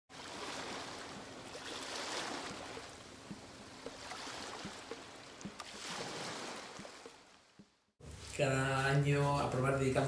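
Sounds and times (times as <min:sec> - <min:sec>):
water bubbling: 0:00.1 - 0:07.3
water rushing: 0:00.1 - 0:07.6.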